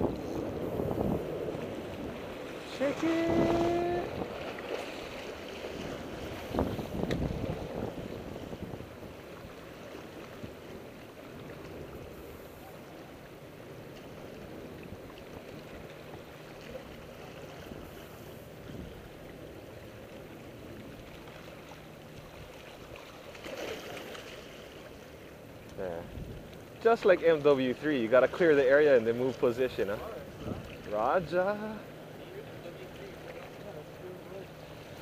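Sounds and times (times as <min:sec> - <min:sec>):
wind buffeting microphone: 0:00.0 - 0:04.5, 0:05.6 - 0:10.7, 0:26.0 - 0:26.5, 0:30.0 - 0:31.4
waves washing against rocks: 0:00.0 - 0:12.4.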